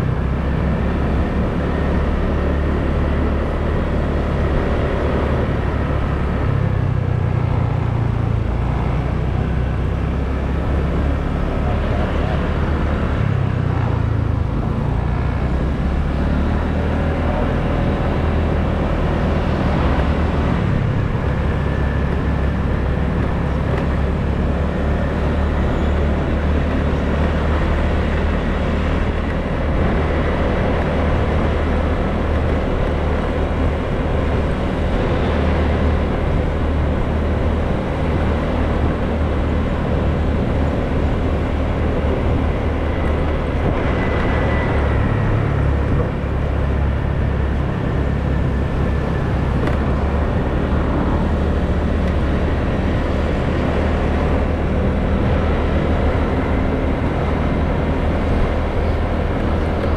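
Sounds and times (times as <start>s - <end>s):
road noise: 0.0s - 59.9s.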